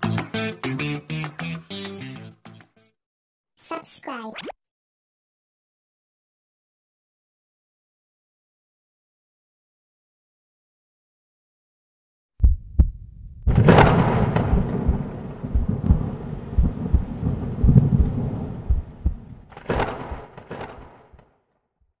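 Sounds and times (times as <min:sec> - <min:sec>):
thunder rumble: 0:12.4 - 0:21.2
thunder cracks: 0:13.4 - 0:21.2.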